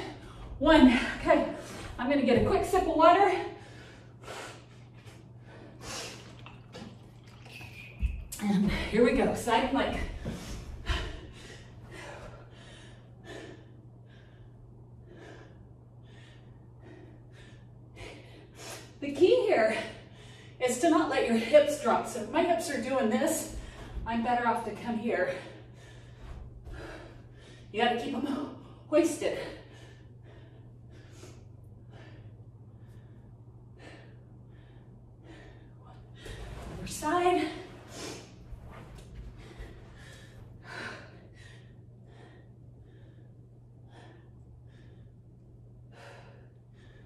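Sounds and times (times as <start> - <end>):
faint steady hum: 0.0 - 47.0
woman breathing hard: 10.1 - 19.0, 25.3 - 27.7, 28.3 - 36.8, 37.6 - 47.0.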